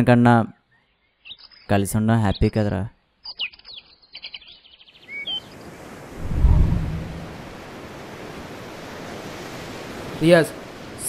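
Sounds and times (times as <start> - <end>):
small birds chirping: 0.6 - 5.8
low rumble: 6.2 - 7.5.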